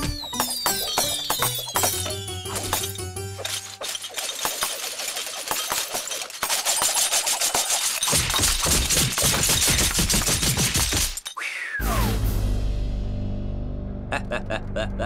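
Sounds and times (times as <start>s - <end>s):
rapid dense rattling: 2.7s - 11.3s.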